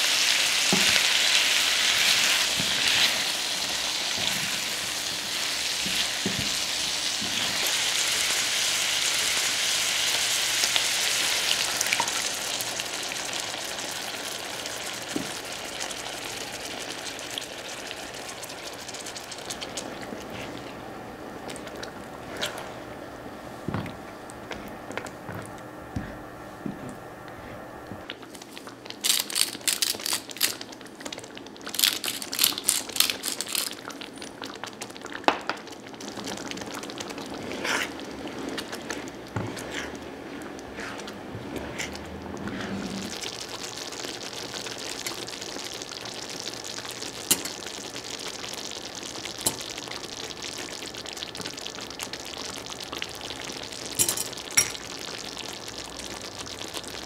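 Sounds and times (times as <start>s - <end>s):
sauce simmering sizzle: 0.0s - 26.2s, 28.0s - 57.0s
spatula scraping sauce in pan: 37.3s - 43.2s.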